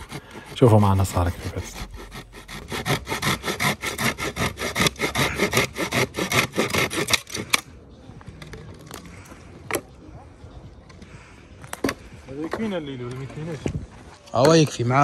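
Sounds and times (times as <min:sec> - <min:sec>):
hand saw cutting firewood: 0:00.0 - 0:07.6.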